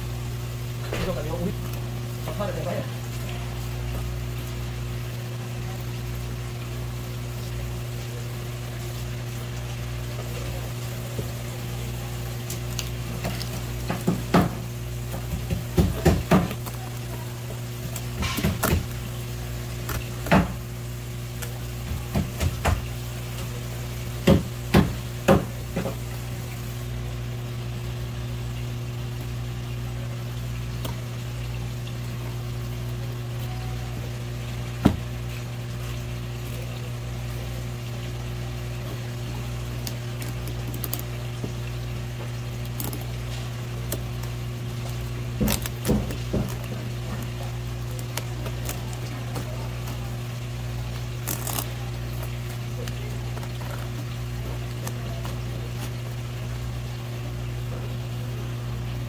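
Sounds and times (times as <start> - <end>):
knife knocking on cutting board: 15.2 - 16.6.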